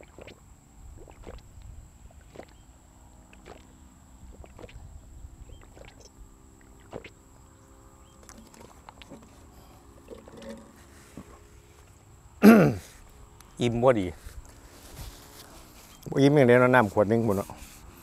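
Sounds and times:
man gulping water: 1.0s - 2.6s, 4.3s - 4.8s, 5.6s - 6.1s, 8.2s - 11.4s.

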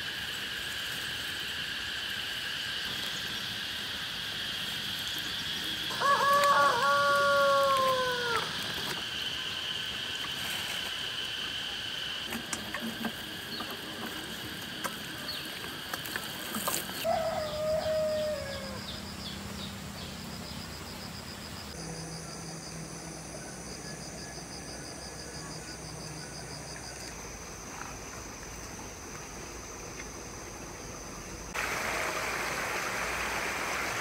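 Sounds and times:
rapid pulsing insect chirps: 0.0s - 31.6s
high insect drone: 0.0s - 34.0s
falling bird call: 5.9s - 8.6s.

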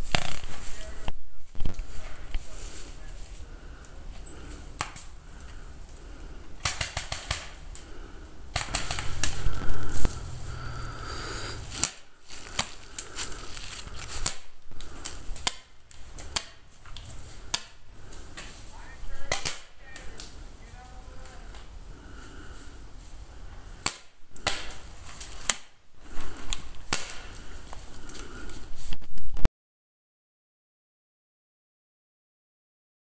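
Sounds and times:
paintball markers firing: 6.6s - 7.6s, 8.5s - 10.2s, 19.2s - 20.4s.

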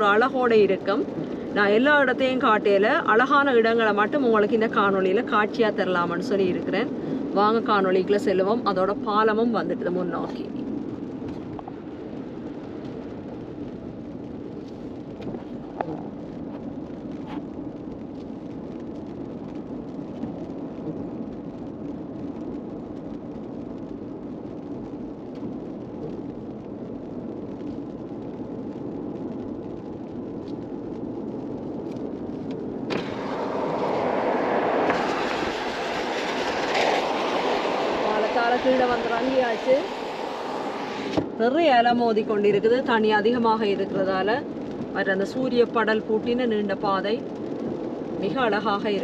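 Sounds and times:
car road noise on wet road: 0.0s - 49.0s
wind and waves at seashore: 32.8s - 41.4s.

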